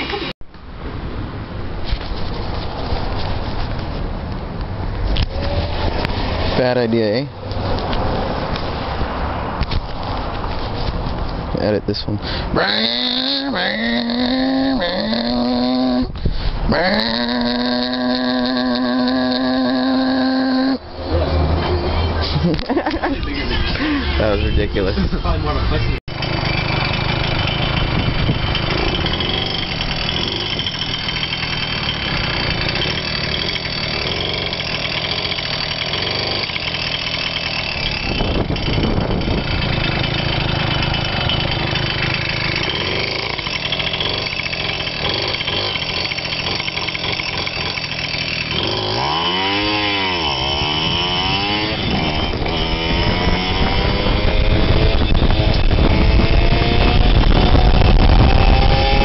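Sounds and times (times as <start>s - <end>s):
moped engine running: 16.7s - 59.0s.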